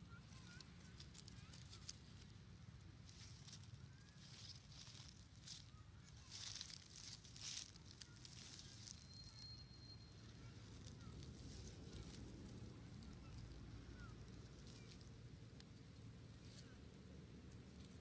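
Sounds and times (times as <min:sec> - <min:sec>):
low steady rumble: 0:00.0 - 0:18.0
thin high whistle-like tone: 0:08.6 - 0:10.6.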